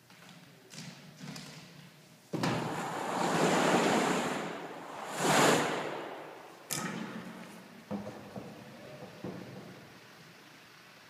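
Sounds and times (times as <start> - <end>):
loud rushing pour: 2.4 - 7.4.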